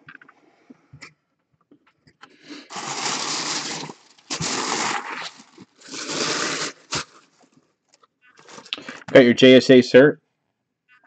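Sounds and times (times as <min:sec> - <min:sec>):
tissue paper crinkling: 0:02.7 - 0:07.4, 0:08.4 - 0:09.0.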